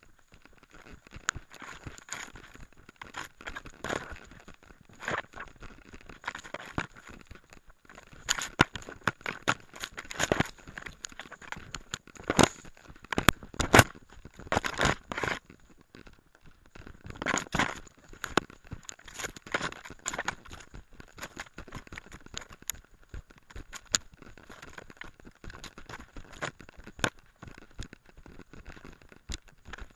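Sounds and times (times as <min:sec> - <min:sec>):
rustling through undergrowth: 0:00.1 - 0:15.8.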